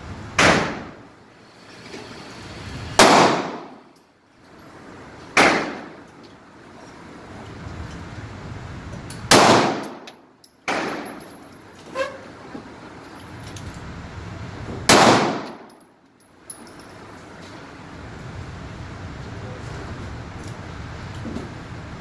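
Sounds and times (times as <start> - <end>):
pistol shots echoing indoors: 0.4 - 1.0, 3.0 - 3.9, 5.4 - 6.0, 9.3 - 11.2, 14.9 - 15.8.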